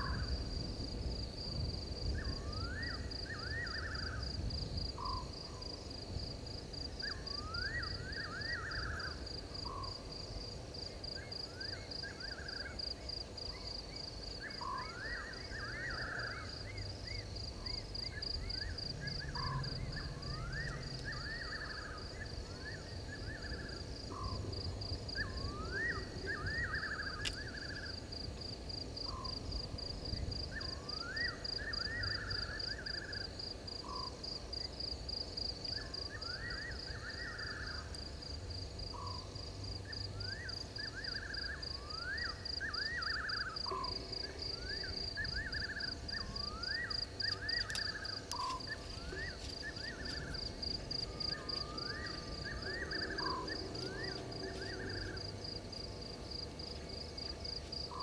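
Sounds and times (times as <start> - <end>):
rising chirping calls: 14.4 - 24.4, 44.7 - 55.6
insect trilling: 14.5 - 28.2, 39.9 - 58.0.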